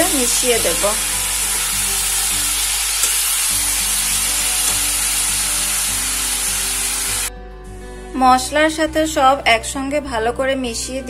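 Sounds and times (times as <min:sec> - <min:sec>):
food sizzling in oil: 0:00.0 - 0:07.3.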